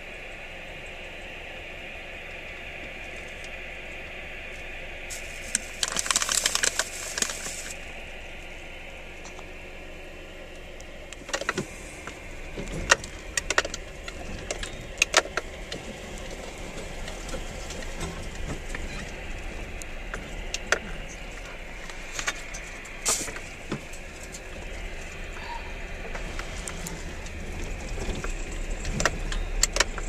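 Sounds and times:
vehicle rumble on dirt track: 0.0 - 30.0
knocks and rattles over bumps: 11.2 - 30.0.

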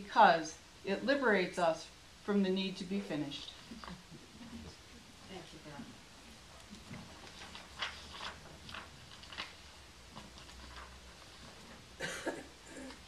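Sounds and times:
paper rustling: 6.5 - 12.0.

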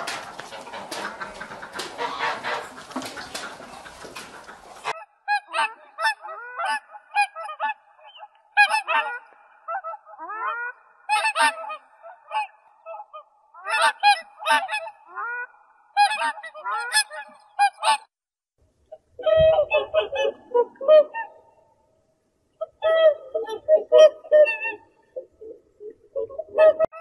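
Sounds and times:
geese honking: 0.0 - 7.8, 8.6 - 18.0.

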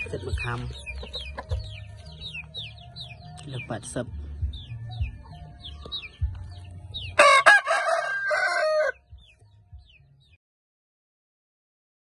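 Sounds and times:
rooster crowing: 7.2 - 9.0.

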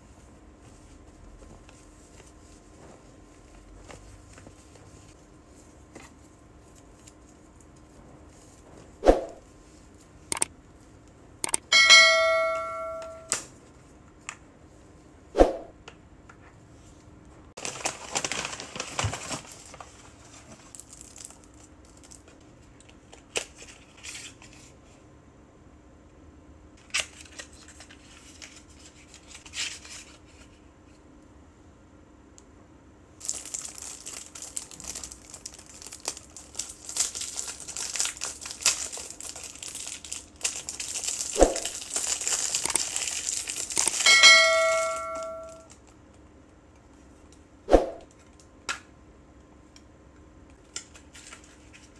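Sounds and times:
sharp clicks: 11.4 - 11.7
bell-like chime: 11.7 - 13.3, 44.1 - 45.6
packaging crinkling and rustling: 17.6 - 24.8, 26.8 - 30.6, 33.2 - 44.1, 50.6 - 51.9.

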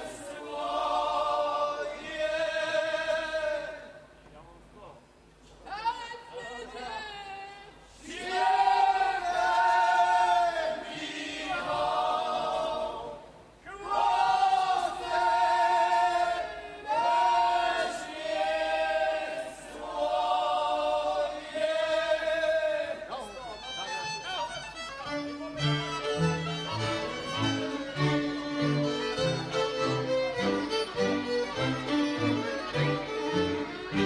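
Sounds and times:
men's group singing folk song: 0.0 - 4.0, 8.1 - 13.2, 13.9 - 23.1.

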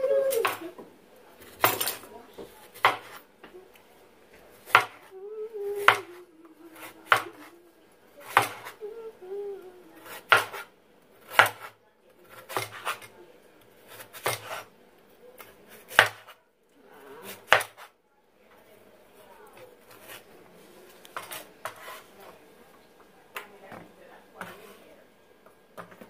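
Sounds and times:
knife chopping carrot on cutting board: 2.8 - 3.2, 4.6 - 5.1, 5.8 - 6.2, 6.8 - 7.5, 8.2 - 8.8, 10.0 - 10.7, 11.3 - 13.1, 13.9 - 14.7, 15.4 - 16.4, 17.3 - 17.9.

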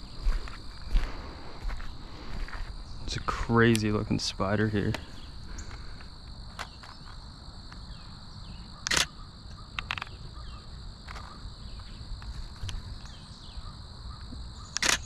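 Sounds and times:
insects trilling: 0.0 - 15.0
sharp clicks: 3.6 - 3.9, 8.8 - 10.2, 14.7 - 15.0.

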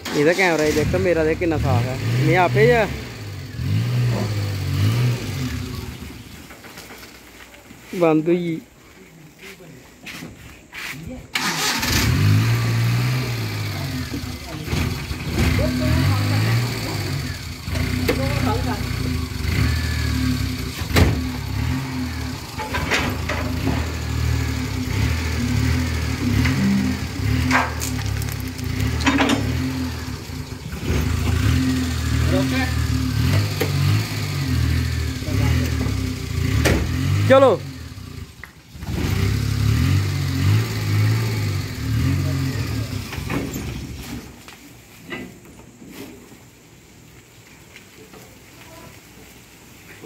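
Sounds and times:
van engine running: 0.0 - 7.4, 11.4 - 47.5.

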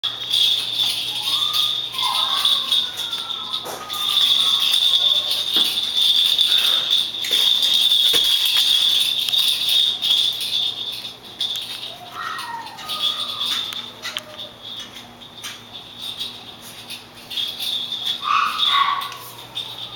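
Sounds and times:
high-pitched toy jingle: 0.0 - 19.9
sharp clicks on tiled floor: 0.0 - 19.9
puppy whimpers: 0.8 - 5.7, 11.8 - 14.6.

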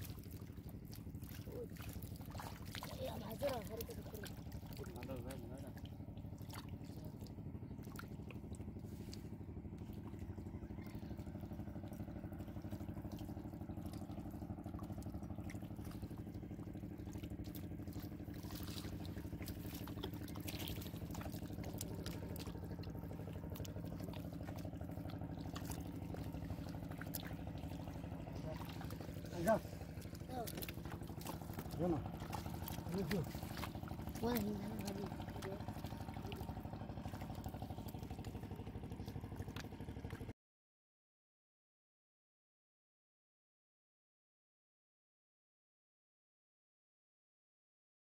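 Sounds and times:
splashes in shallow water: 0.0 - 40.3
steady motor hum: 0.0 - 40.3.

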